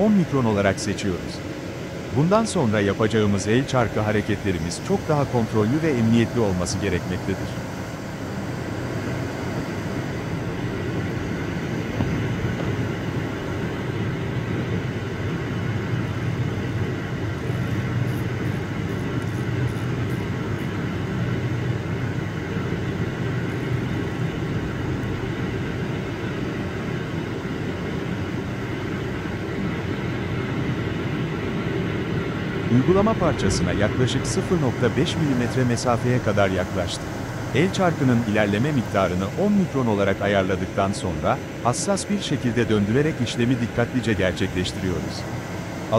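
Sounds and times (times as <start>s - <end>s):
lathe machine hum: 0.0s - 45.9s.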